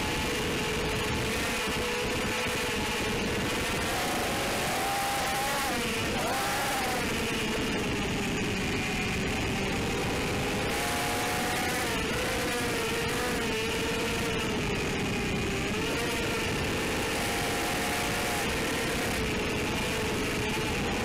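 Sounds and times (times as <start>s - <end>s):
quadcopter motors whining: 0.0s - 21.0s.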